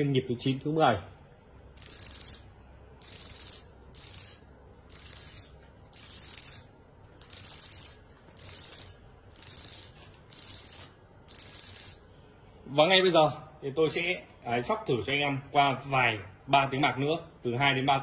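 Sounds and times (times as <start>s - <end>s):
vibrating receiver buzzing: 1.8s - 12.0s.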